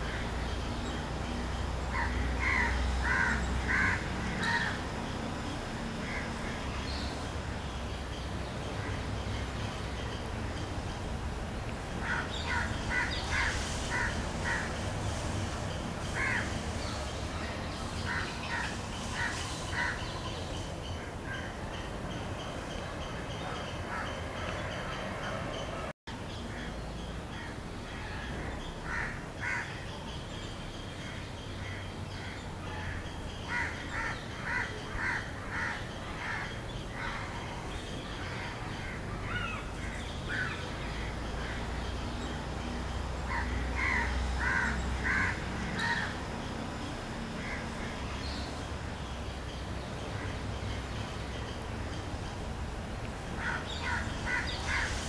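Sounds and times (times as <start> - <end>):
outdoor background noise: 0.0 - 55.0
crows cawing: 1.9 - 4.8, 12.0 - 14.7, 16.1 - 16.5, 27.4 - 29.8, 32.2 - 37.3, 43.3 - 46.2, 53.4 - 55.0.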